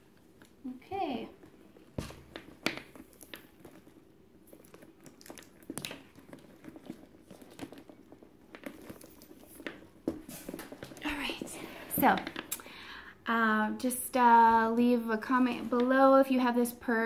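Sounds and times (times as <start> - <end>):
leather bag rustling: 1.4 - 12.5.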